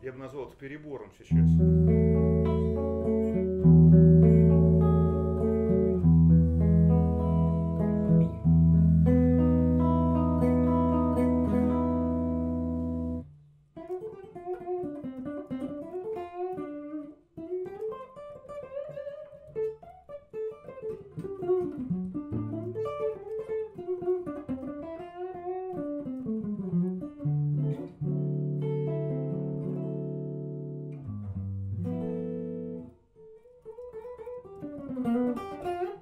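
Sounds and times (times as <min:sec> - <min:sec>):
electric guitar picked arpeggios: 0:01.3 - 0:36.0
electric guitar chord ringing: 0:01.4 - 0:13.2.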